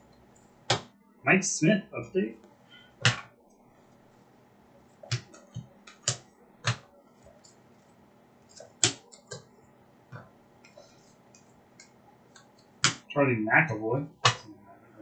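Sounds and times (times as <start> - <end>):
trading cards snapping: 5.1 - 6.8, 8.5 - 9.5, 11.4 - 13.1.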